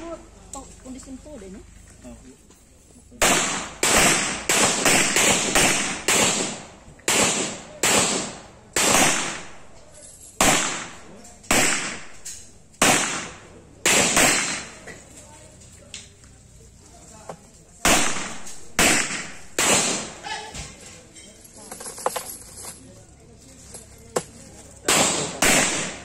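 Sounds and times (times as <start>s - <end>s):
handgun shots: 3.2s - 9.6s, 10.4s - 14.8s, 17.8s - 20.2s, 24.8s - 26.0s.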